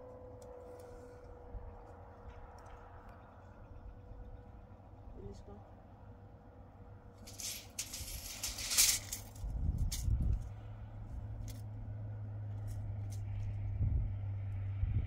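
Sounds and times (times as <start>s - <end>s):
loud hissing noise: 7.3s - 9.3s
van engine running: 9.0s - 15.0s.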